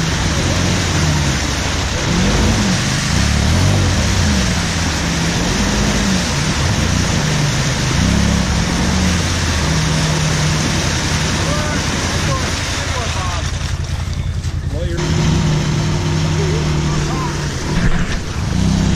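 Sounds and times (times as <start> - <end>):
tyres spinning in mud: 0.0 - 15.4
engine revving: 0.0 - 18.9.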